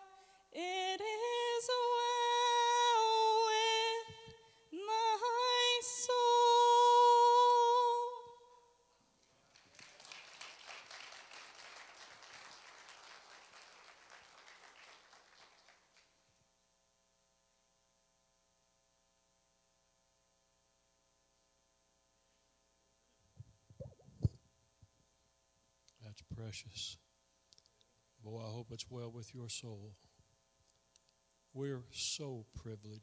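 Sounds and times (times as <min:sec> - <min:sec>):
woman singing: 0:00.0 - 0:08.6
congregation clapping: 0:09.4 - 0:16.3.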